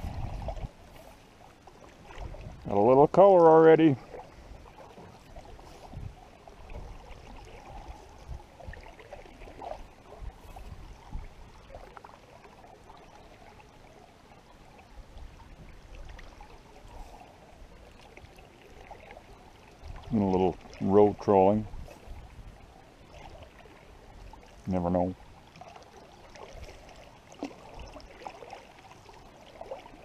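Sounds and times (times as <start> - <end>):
water lapping at hull: 0.0 - 30.0
water splashing off paddle: 3.7 - 13.1, 25.5 - 30.0.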